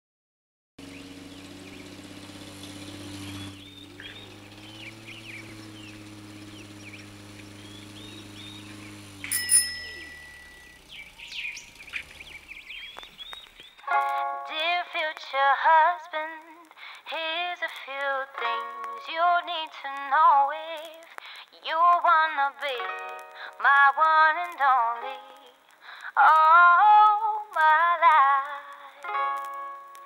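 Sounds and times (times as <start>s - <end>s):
birds chirping and singing: 0.8s - 13.8s
low held tones humming: 0.9s - 13.2s
bell ringing: 9.2s - 10.9s.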